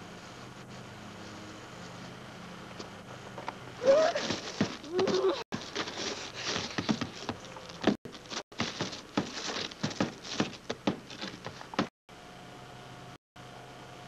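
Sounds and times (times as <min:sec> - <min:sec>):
scraping on roof shingles: 0:03.8 - 0:11.9.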